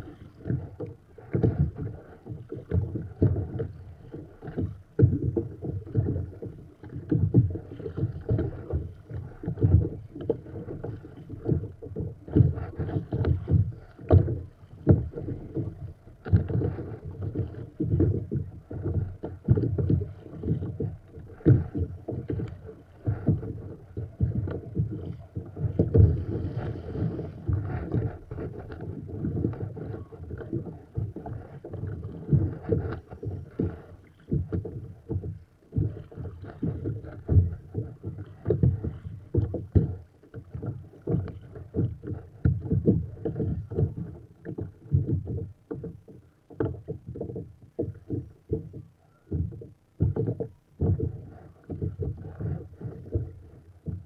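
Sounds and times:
paddle splashing in water: 0.0 - 54.0
wind on microphone: 1.4 - 40.0.

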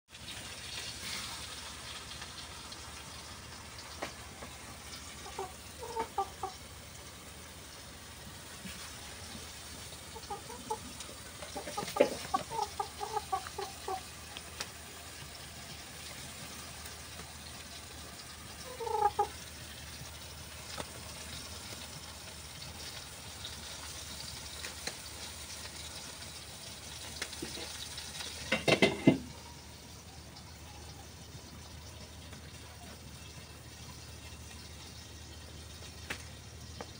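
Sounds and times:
chicken clucking: 4.4 - 7.0, 8.5 - 14.4, 18.5 - 19.4.

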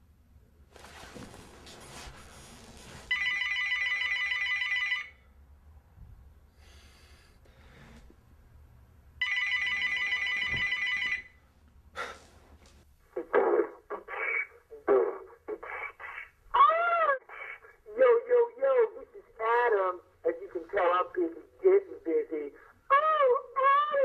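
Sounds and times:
telephone ringing: 3.1 - 5.2, 9.2 - 11.4.

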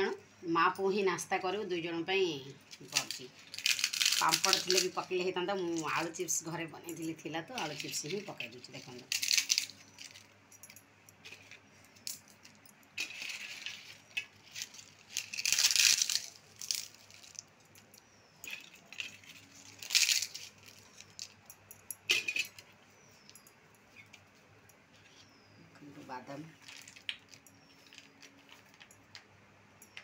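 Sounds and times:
potato chips crackling: 2.7 - 6.0, 7.6 - 10.2, 13.0 - 17.5, 18.5 - 21.4, 26.5 - 28.9.

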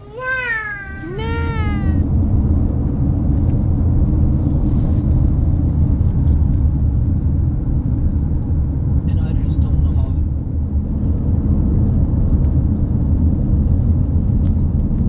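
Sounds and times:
toddler squealing: 0.0 - 2.0
road noise inside moving car: 0.0 - 15.0.

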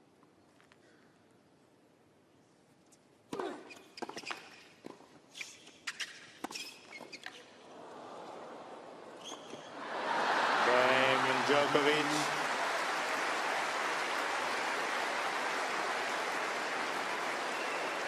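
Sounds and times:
crowd cheering: 7.7 - 9.1, 9.7 - 18.0.

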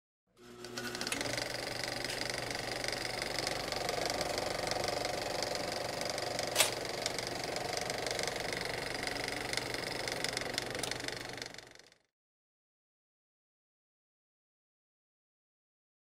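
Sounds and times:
gear machinery rattling: 0.7 - 12.0.

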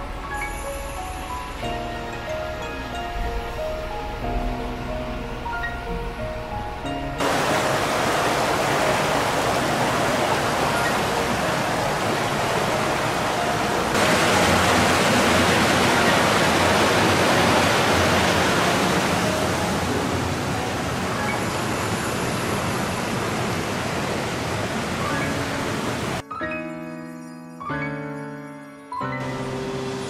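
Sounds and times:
water rushing through channel: 7.2 - 26.2.

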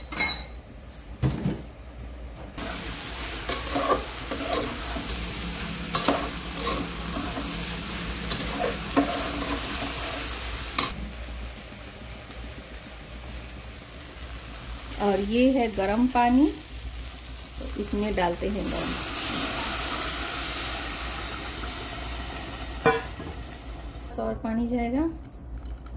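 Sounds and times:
metal ladle scraping a pot: 2.6 - 5.1, 5.9 - 7.6, 8.2 - 10.9
rice sizzling in a pot: 2.6 - 24.1.

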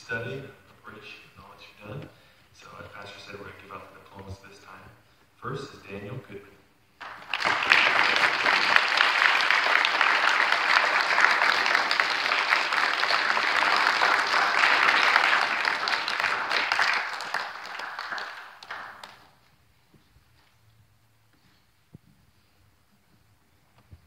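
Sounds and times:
audience applauding: 7.0 - 19.4.

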